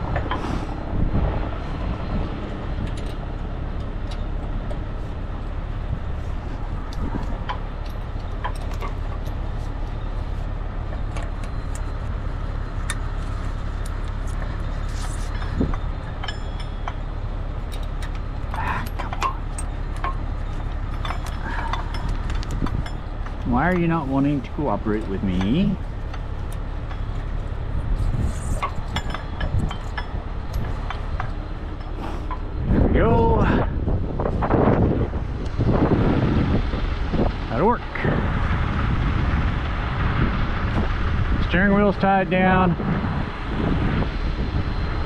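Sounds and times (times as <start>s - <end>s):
diesel truck engine idling: 0.0s - 45.0s
steel chain clinking: 6.3s - 32.6s.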